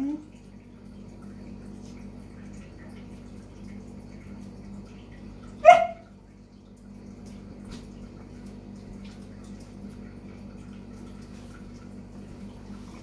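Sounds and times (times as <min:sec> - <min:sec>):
low background hum: 0:00.0 - 0:13.0
dog barking: 0:05.6 - 0:06.1.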